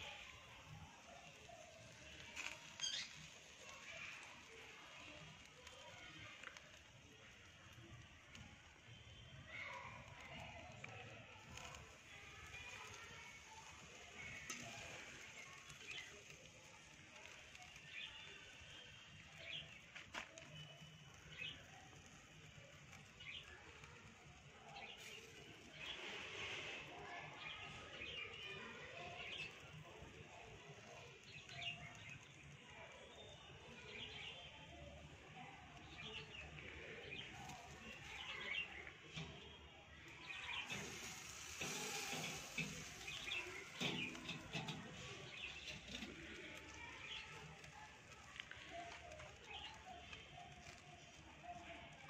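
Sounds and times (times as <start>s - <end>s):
birds chirping: 35.8s - 51.2s.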